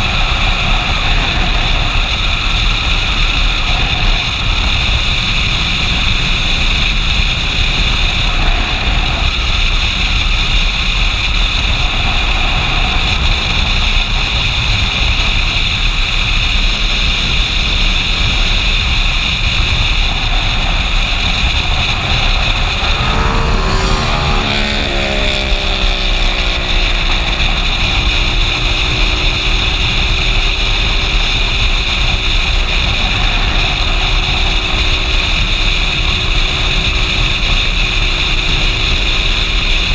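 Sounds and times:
motorcycle engine and tyre rumble: 0.0s - 39.9s
wind rush over microphone: 0.0s - 39.9s
engine note sliding in pitch: 22.2s - 31.4s.

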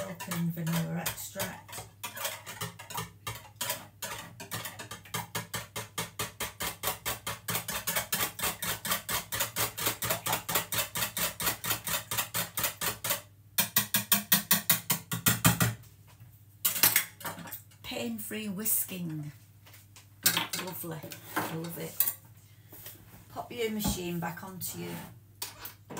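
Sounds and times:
whisk clattering against jug: 0.0s - 15.6s.

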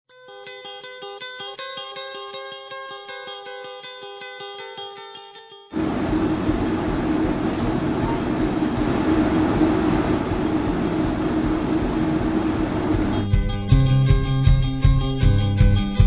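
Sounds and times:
airliner cabin engine and airflow rush: 5.8s - 13.3s
low hum: 5.8s - 13.3s.

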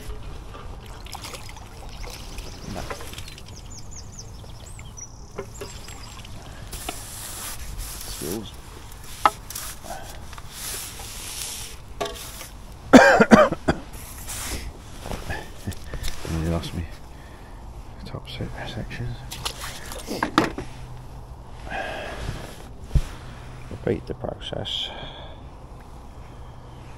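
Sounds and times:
water trickling: 0.6s - 7.0s
fishing tackle knocks and rubs: 9.0s - 9.8s.

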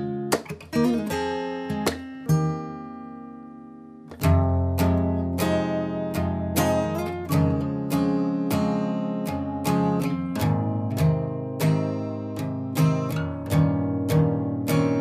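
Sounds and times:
strummed acoustic guitar: 0.0s - 15.0s.

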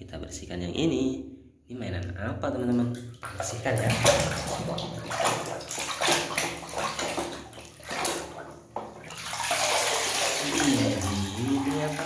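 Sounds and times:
water sloshing in plastic basin: 2.6s - 12.0s.

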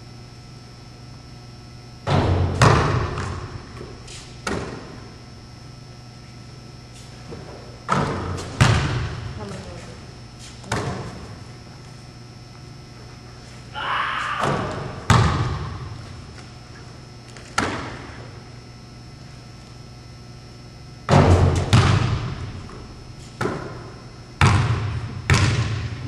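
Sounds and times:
basketball bouncing on gym floor: 2.0s - 5.1s, 7.3s - 9.9s, 10.6s - 11.4s, 14.4s - 16.5s, 17.3s - 18.2s, 21.1s - 26.0s.

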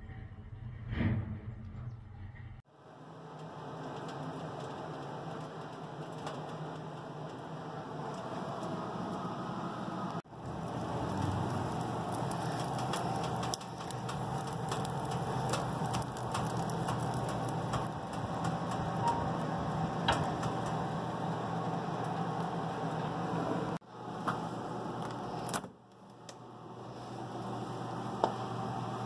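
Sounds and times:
wood fire hissing: 3.0s - 29.0s
fire crackling and popping: 10.3s - 22.9s, 24.9s - 26.4s.

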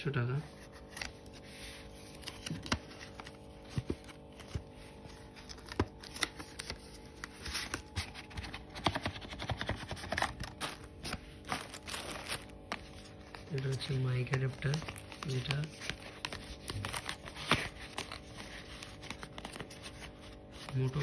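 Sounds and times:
steady low hum: 0.0s - 21.0s
cardboard box clicks and taps: 8.2s - 10.3s
plastic bag crinkling: 10.4s - 19.8s.

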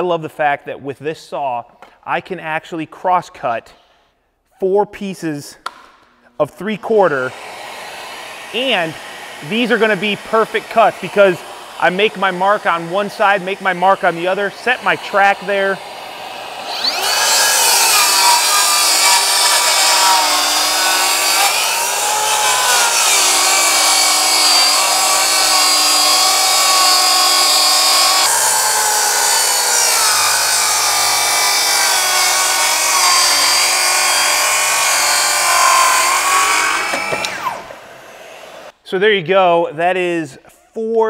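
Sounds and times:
track saw cutting plywood: 6.6s - 38.7s.

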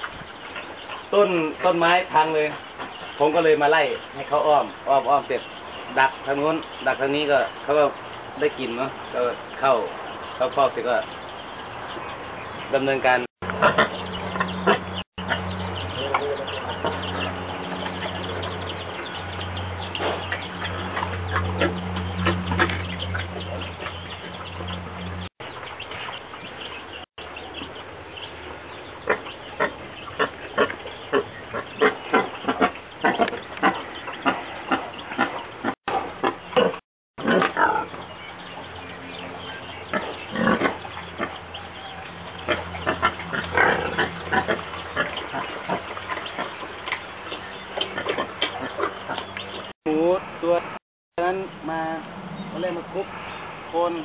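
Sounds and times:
wild boar grunting: 29.1s - 37.9s, 39.6s - 46.6s.

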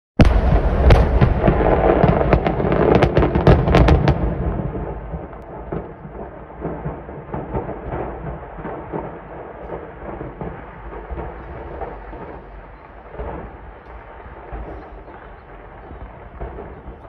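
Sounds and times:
fireworks crackling: 0.2s - 17.0s
fireworks exploding: 0.2s - 17.0s
rumble: 0.2s - 17.0s.

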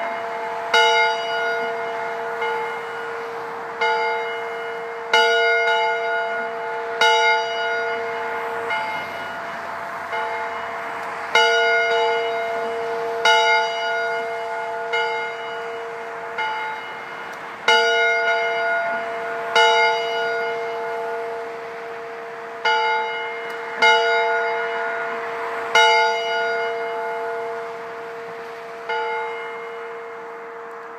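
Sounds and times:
church bell tolling: 0.0s - 30.9s.

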